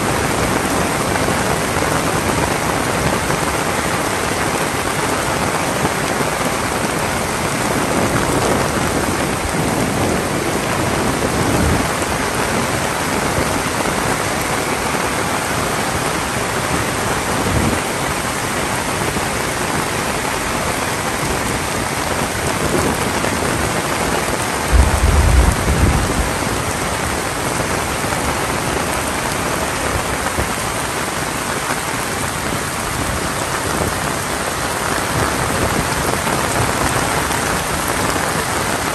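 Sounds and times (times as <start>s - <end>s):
heavy rain falling: 0.0s - 38.9s
deep rumble: 24.7s - 27.6s.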